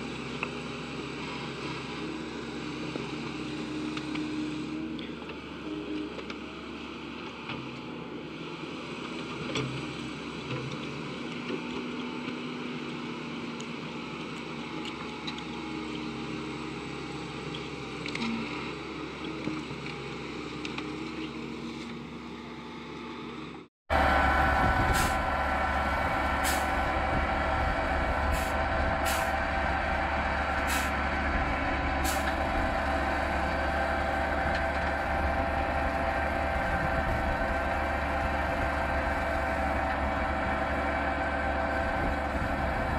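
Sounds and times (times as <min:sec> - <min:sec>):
diesel engine running: 0:00.0 - 0:42.9
milling machine whining drone: 0:23.9 - 0:42.9.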